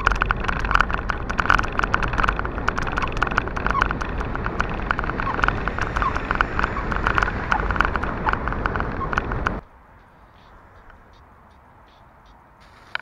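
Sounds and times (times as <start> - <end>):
wind on microphone: 0.0 - 9.6
bicycle rattling over road: 0.0 - 11.8, 12.6 - 13.0.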